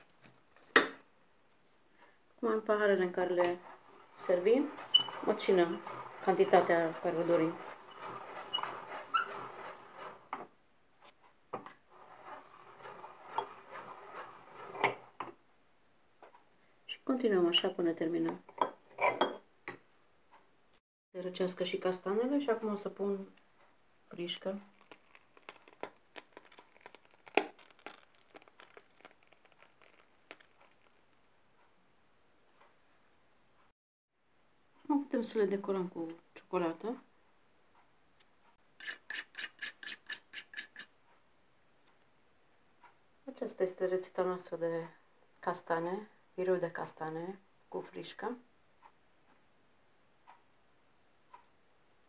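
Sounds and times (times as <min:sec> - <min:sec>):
piping bag crinkling: 0:00.0 - 0:00.8, 0:24.2 - 0:31.3
hand-cranked meat grinder turning: 0:03.6 - 0:10.4, 0:11.9 - 0:15.2.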